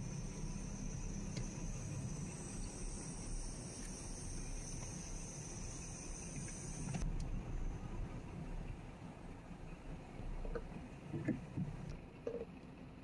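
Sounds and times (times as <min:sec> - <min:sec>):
high insect trill: 0:00.0 - 0:07.0.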